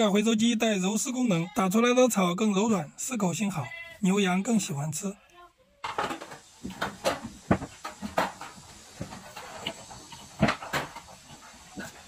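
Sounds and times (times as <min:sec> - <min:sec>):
rustling and knocking of stalks: 0:05.9 - 0:12.0
goats feeding at metal trough: 0:06.1 - 0:12.0.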